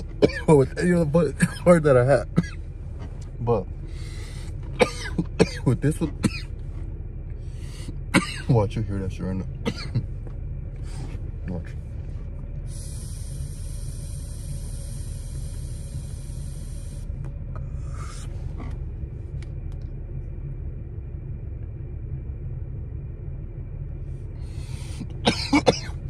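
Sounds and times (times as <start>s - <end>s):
car cabin rumble: 0.0s - 26.0s
person exhaling: 3.9s - 4.6s, 17.6s - 18.4s, 24.4s - 25.2s
vape pen hissing: 12.7s - 17.1s.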